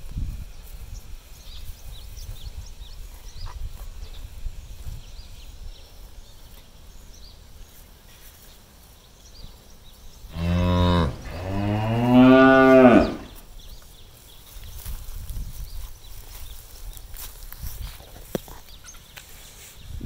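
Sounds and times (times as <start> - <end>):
cow mooing: 10.3 - 13.3.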